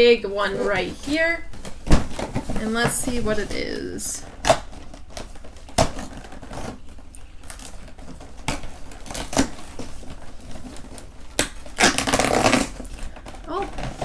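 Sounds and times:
cardboard packaging clicks and rustles: 0:01.1 - 0:14.0.

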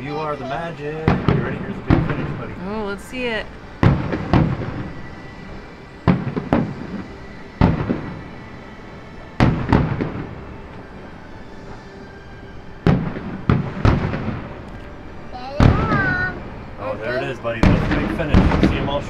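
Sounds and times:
fireworks bangs with echoing rumble: 0:01.0 - 0:08.6, 0:09.2 - 0:10.9, 0:12.8 - 0:14.7, 0:15.6 - 0:16.7, 0:17.6 - 0:19.0.

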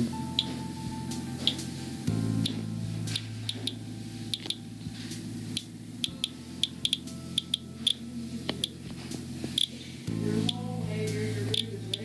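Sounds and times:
geiger counter chirps: 0:03.5 - 0:04.6, 0:05.6 - 0:08.0.

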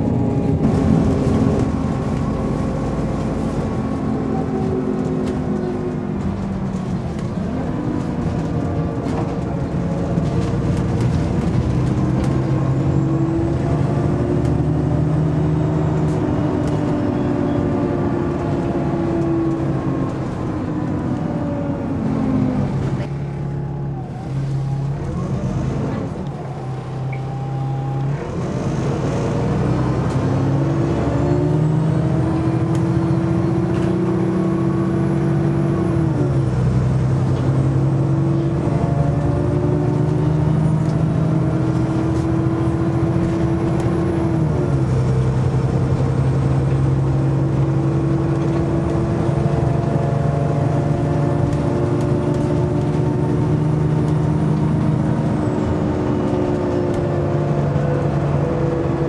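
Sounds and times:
bus engine: 0:00.0 - 0:59.0.

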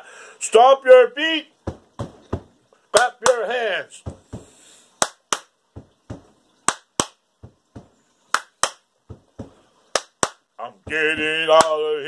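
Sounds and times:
foot stomps: 0:01.7 - 0:02.6, 0:04.0 - 0:04.6, 0:05.8 - 0:08.0, 0:08.6 - 0:09.6, 0:10.2 - 0:11.7
hand claps: 0:03.0 - 0:03.4, 0:05.0 - 0:07.2, 0:08.3 - 0:08.9, 0:09.9 - 0:10.5, 0:11.5 - 0:11.8.

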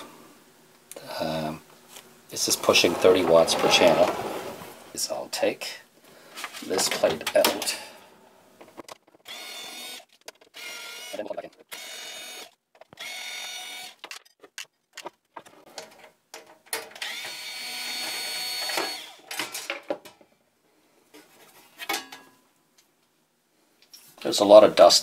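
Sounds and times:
cordless drill motor whine: 0:09.3 - 0:10.0, 0:10.6 - 0:11.2, 0:11.8 - 0:14.0, 0:17.0 - 0:19.2.

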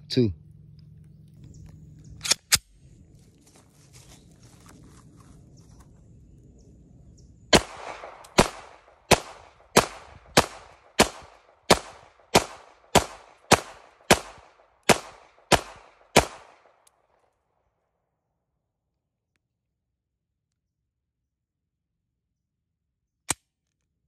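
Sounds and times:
pistol shots with echo: 0:07.5 - 0:16.8.

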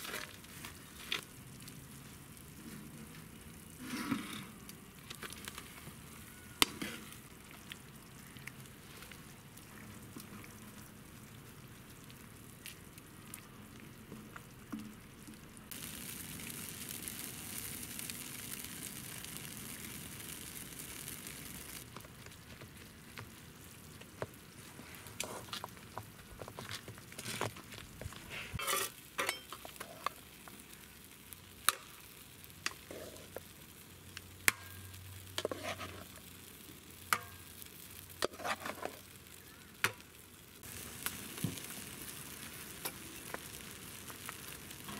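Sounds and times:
sausages sizzling in frying pan: 0:00.0 - 0:44.9
utensil scraping and tapping pan: 0:28.6 - 0:30.1, 0:35.4 - 0:36.1, 0:38.2 - 0:39.0.

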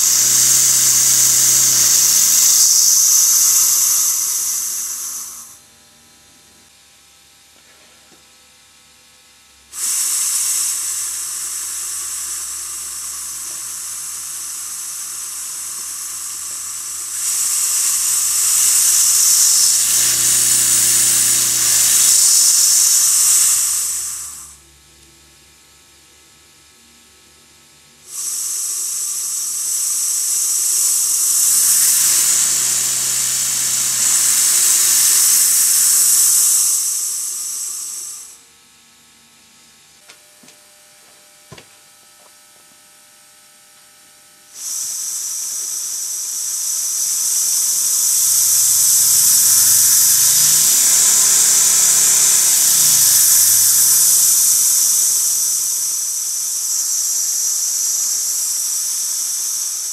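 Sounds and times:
model steam engine hissing and beating: 0:00.0 - 0:05.6, 0:09.6 - 0:24.6, 0:28.0 - 0:38.5, 0:44.5 - 0:59.9.

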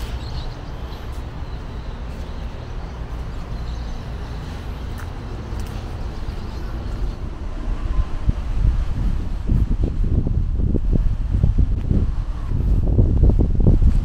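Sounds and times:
wind rumbling on microphone: 0:00.0 - 0:14.0.

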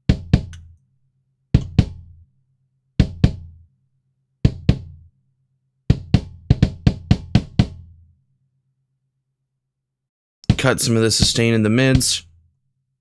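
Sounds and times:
kick drum hits: 0:00.1 - 0:00.5, 0:03.0 - 0:03.5, 0:04.4 - 0:05.0, 0:05.9 - 0:07.8.

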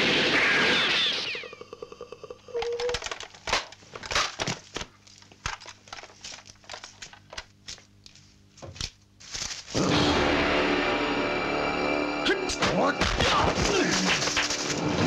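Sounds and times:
irregular crackling snaps: 0:02.6 - 0:09.8, 0:13.0 - 0:15.0.

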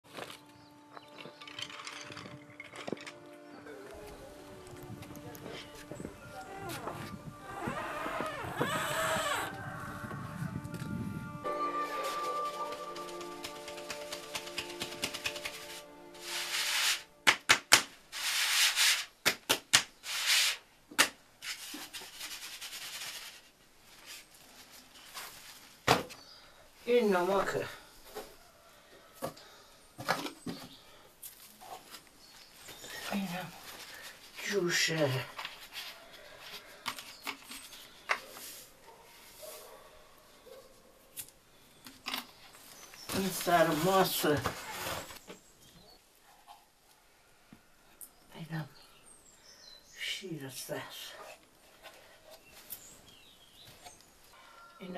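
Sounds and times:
flour sieve rubbing hiss: 0:15.6 - 0:17.1.

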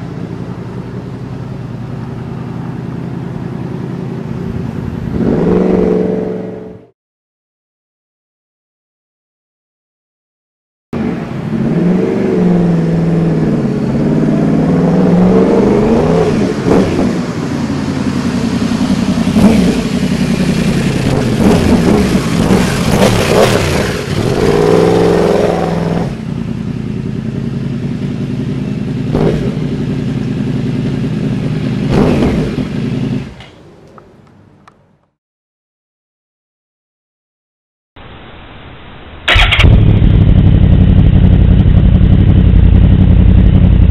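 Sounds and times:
motorcycle engine revving: 0:00.0 - 0:06.9, 0:11.0 - 0:33.6, 0:39.3 - 0:43.9
exhaust cracks: 0:39.3 - 0:43.9.

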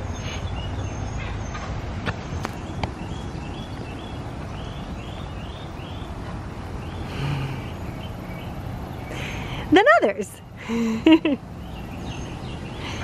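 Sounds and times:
low outdoor rumble: 0:00.0 - 0:13.0
small bird chirping: 0:02.2 - 0:09.4.

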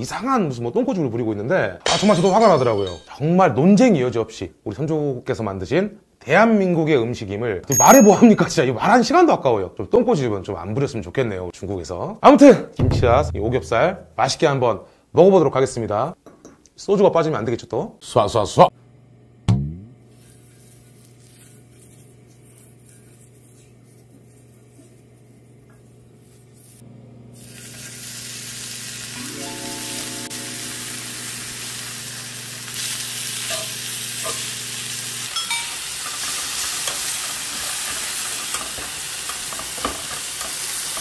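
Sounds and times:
pork sizzling on grill pan: 0:26.3 - 0:41.0.

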